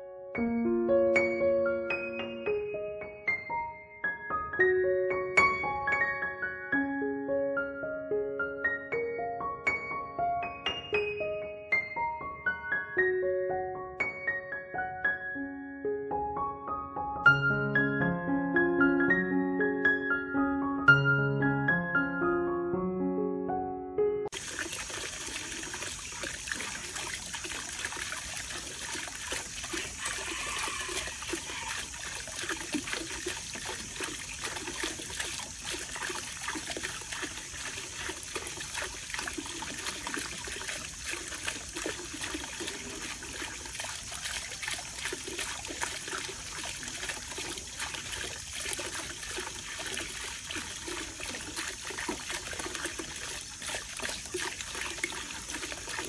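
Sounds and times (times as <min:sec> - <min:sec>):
fountain water splashing: 0:24.3 - 0:56.0
water trickling: 0:24.3 - 0:56.0.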